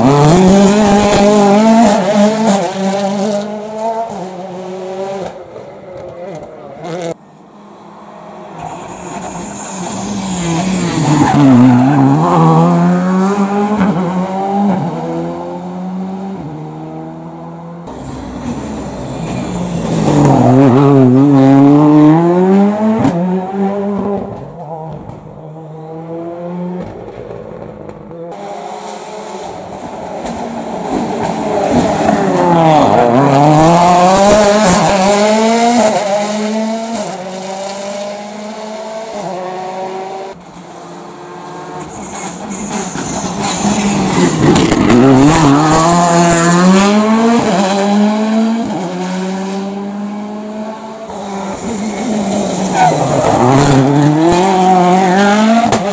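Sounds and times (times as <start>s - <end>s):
rally cars accelerating past: 0.0s - 55.9s.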